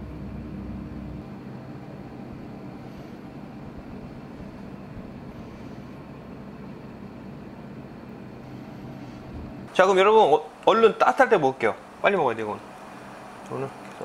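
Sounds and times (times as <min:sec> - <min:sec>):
deep rumble: 0:00.0 - 0:07.0, 0:08.5 - 0:09.7
room hum: 0:00.0 - 0:14.0.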